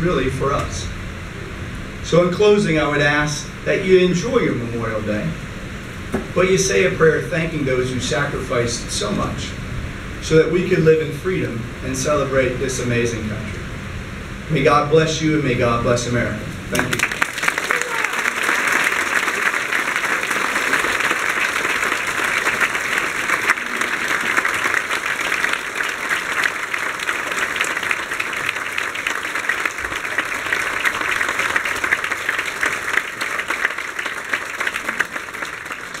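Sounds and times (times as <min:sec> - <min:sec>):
crowd applauding: 0:16.7 - 0:36.0.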